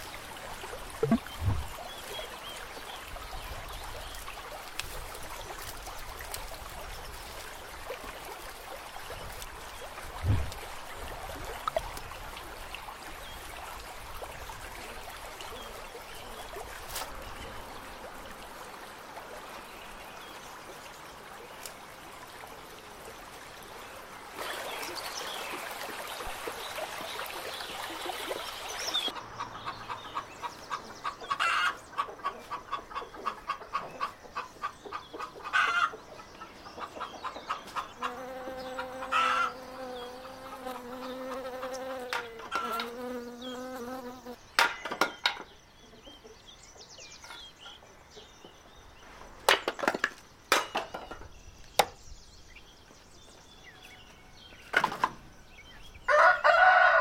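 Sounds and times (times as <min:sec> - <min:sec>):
sharp knocks: 0:01.0 - 0:01.7
insect buzzing: 0:38.0 - 0:44.4.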